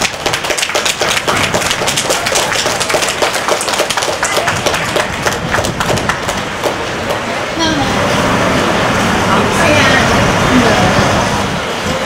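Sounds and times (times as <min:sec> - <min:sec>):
crowd applauding: 0:00.0 - 0:07.5.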